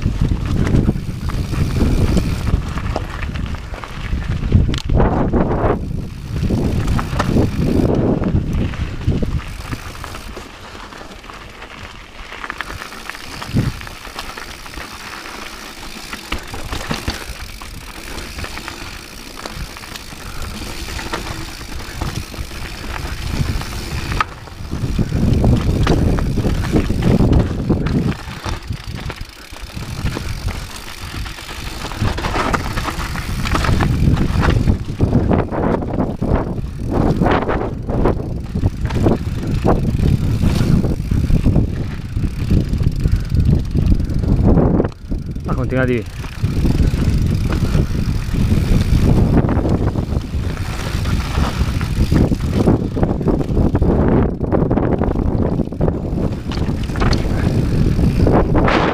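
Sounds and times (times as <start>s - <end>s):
tyres crunching over stones: 0.0s - 5.0s, 5.8s - 37.4s, 46.0s - 53.7s, 55.6s - 58.9s
wind rumble on microphone: 0.0s - 10.4s, 12.6s - 14.9s, 15.9s - 58.9s
bike chain rattling: 0.0s - 58.9s.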